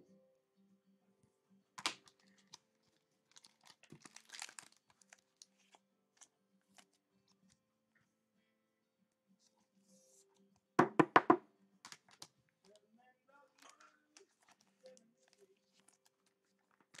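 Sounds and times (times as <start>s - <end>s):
card packaging crinkling: 1.8s - 6.9s, 13.6s - 17.0s.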